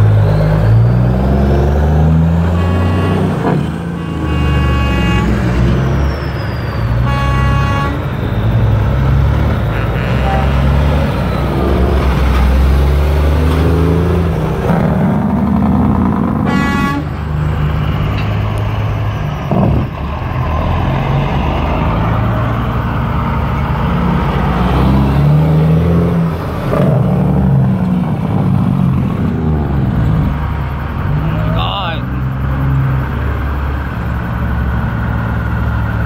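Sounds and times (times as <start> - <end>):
diesel trucks passing: 0.0 - 36.0
truck horn toot: 2.3 - 8.4, 9.6 - 11.1, 16.4 - 17.2.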